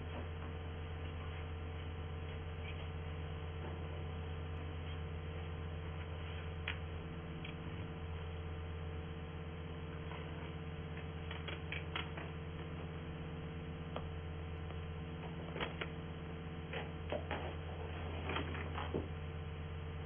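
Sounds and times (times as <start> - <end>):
low hum: 0.0 - 20.0
clicks and rustles of handling: 10.1 - 12.6.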